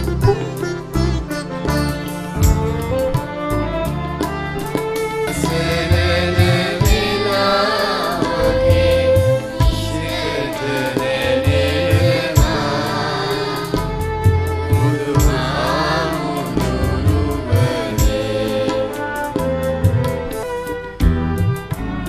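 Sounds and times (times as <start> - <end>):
sitar: 0.0 - 22.0
violin: 0.0 - 22.0
children's choir singing: 5.3 - 14.0, 14.7 - 19.4
low repeating beat: 21.0 - 22.0.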